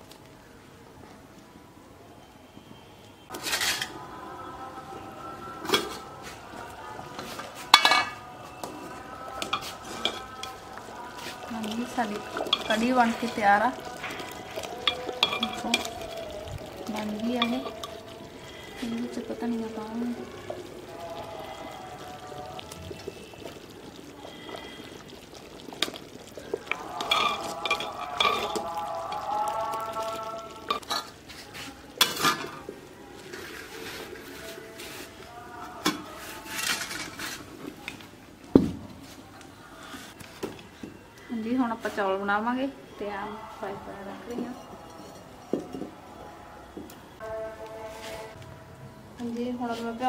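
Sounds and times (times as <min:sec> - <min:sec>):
spoon stirring thick liquid: 0:05.5 - 0:38.2
metal dishes clattering: 0:07.6 - 0:08.3, 0:09.4 - 0:10.7, 0:12.2 - 0:16.3, 0:27.0 - 0:28.8, 0:30.6 - 0:31.2, 0:32.0 - 0:32.7
spoon clinking against pot: 0:07.7 - 0:08.3, 0:09.4 - 0:10.7, 0:12.2 - 0:16.4, 0:26.7 - 0:29.2.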